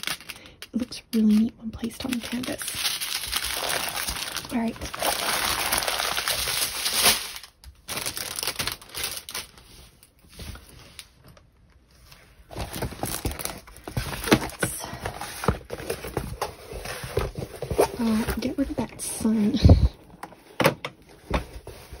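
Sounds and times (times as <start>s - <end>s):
plastic crinkling and rustling: 0.0s - 22.0s.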